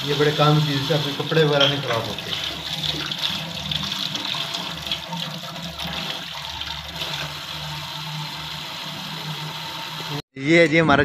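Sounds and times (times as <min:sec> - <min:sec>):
tap water splashing into steel sink: 0:01.1 - 0:06.2.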